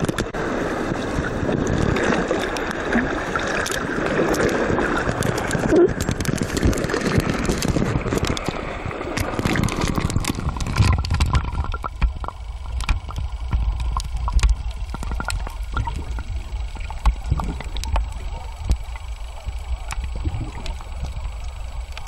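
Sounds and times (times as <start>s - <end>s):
muffled underwater rumble: 0.0s - 22.0s
water sloshing and gurgling: 0.0s - 22.0s.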